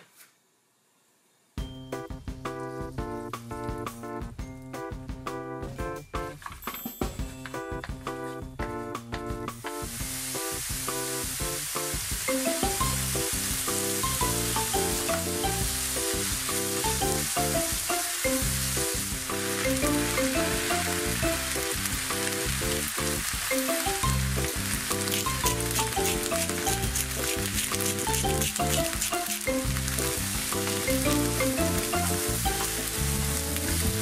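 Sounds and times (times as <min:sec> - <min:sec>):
light background music: 0:01.6 - 0:34.0
noodles sizzling in frying pan: 0:09.8 - 0:34.0.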